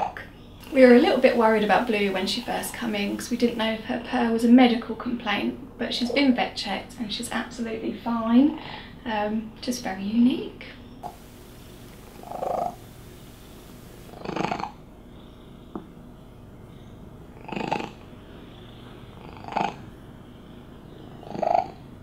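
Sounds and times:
cat purring loudly: 12.0s - 14.7s.

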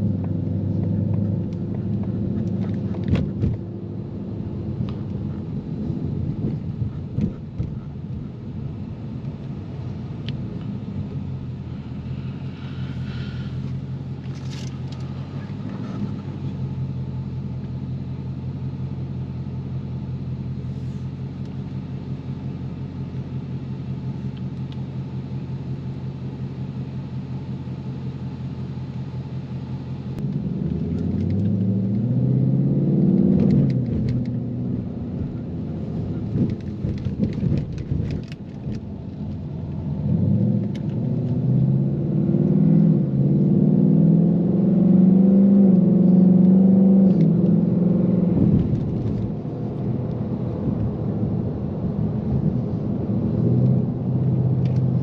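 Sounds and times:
car engine droning: 0.0s - 55.0s
road noise: 0.0s - 55.0s.

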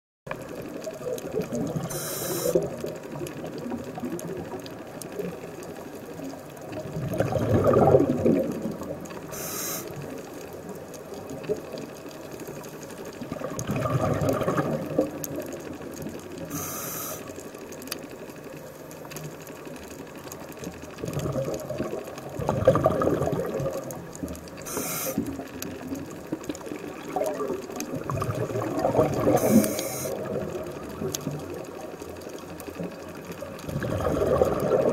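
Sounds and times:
gurgling exhaled bubbles: 0.4s - 10.3s, 13.0s - 16.8s, 20.8s - 34.9s
regulator inhale hiss: 1.9s - 2.7s, 9.3s - 10.2s, 16.5s - 17.4s, 24.6s - 25.4s, 29.3s - 30.2s.

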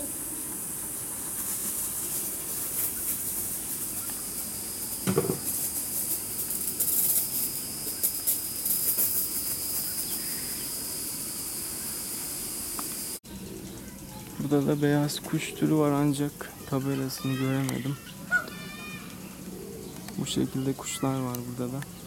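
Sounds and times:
garden sprinklers spraying water: 0.0s - 19.4s, 20.0s - 22.0s.

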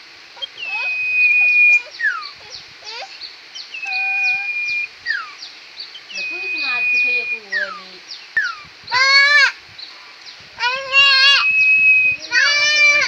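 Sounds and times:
bird whistling: 0.4s - 2.6s, 3.6s - 8.7s, 10.7s - 13.0s
quick high bird chirps: 0.4s - 3.0s.

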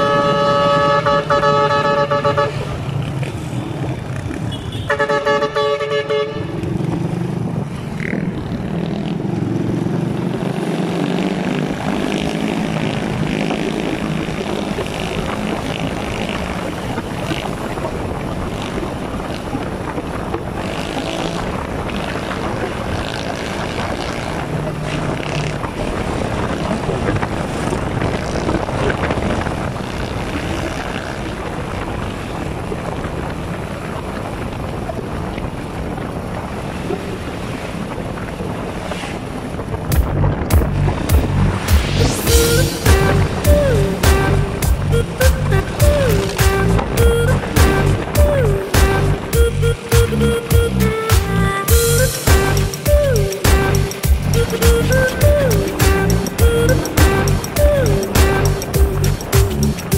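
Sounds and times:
vehicle horn honking: 0.0s - 2.7s, 4.5s - 6.6s
vehicle engine and road noise: 0.0s - 59.9s.

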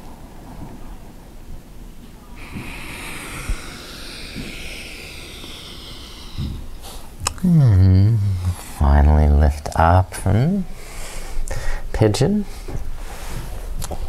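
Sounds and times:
faint low room rumble: 0.0s - 14.0s
man breathing out slowly: 2.4s - 8.8s, 10.8s - 11.9s.

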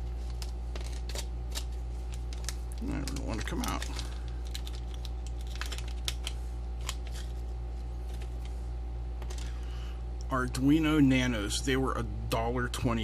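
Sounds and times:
plastic bag crinkling: 0.0s - 8.6s
low electrical hum: 0.0s - 13.0s.

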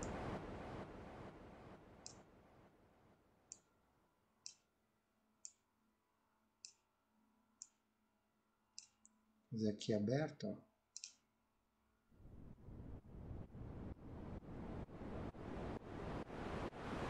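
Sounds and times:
white noise hiss: 0.0s - 3.2s, 12.2s - 17.0s
faint mouse clicks: 4.4s - 4.7s, 6.6s - 6.9s, 7.6s - 7.8s, 8.8s - 9.2s, 11.0s - 11.3s.

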